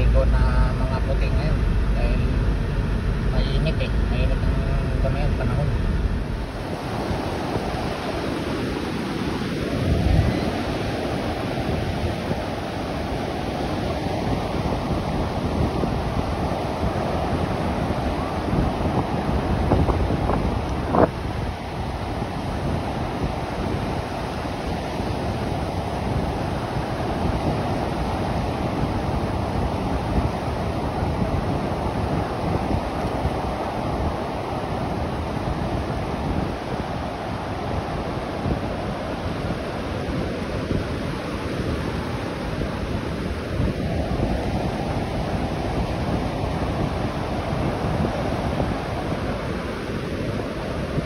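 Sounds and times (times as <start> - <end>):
surf waves breaking on sand: 0.0 - 51.0
wind rumbling on microphone: 0.0 - 51.0.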